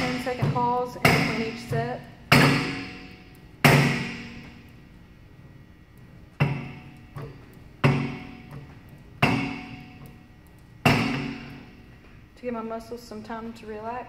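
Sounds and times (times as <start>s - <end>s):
weight-stack plates clanking: 0.0s - 4.7s, 6.2s - 11.9s.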